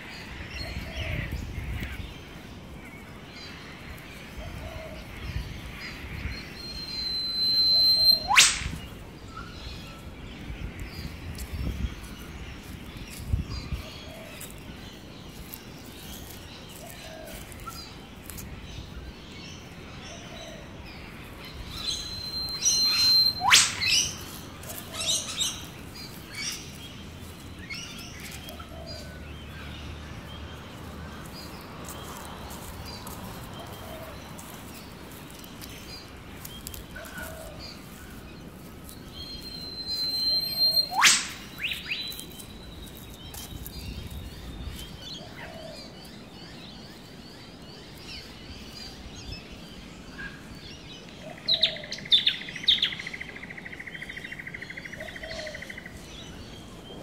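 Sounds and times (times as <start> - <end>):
small birds chirping: 0.0 - 57.0
bird whistle ending in whip-crack: 6.8 - 8.9, 21.8 - 24.2, 39.8 - 42.0.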